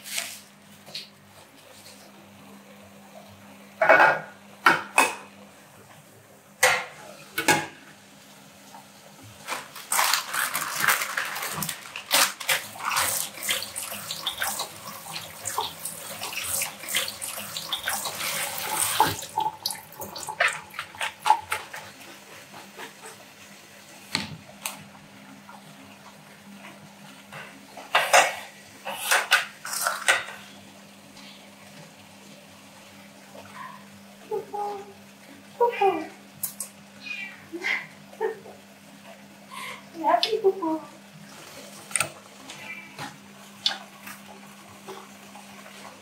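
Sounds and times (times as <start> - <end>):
tap water running onto leaves: 9.3 - 22.0
water dripping from colander: 12.8 - 21.4.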